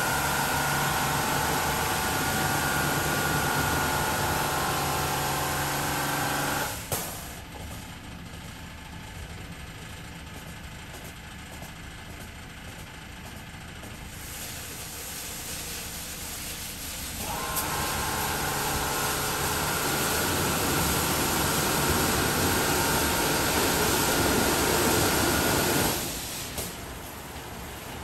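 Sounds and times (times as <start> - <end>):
whining motor: 0.0 - 6.9, 17.2 - 26.2
car wash spray and brushes: 0.0 - 8.6, 13.4 - 28.0.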